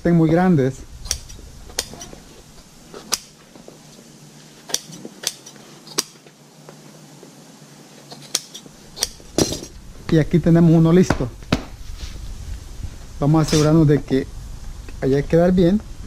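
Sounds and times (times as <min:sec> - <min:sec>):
shears snipping: 0:01.0 - 0:04.0, 0:04.6 - 0:06.4, 0:08.0 - 0:10.2.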